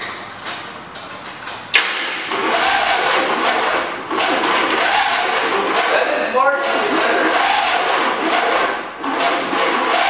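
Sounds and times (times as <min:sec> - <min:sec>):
engine running loudly without mufflers: 0:02.3 - 0:10.0.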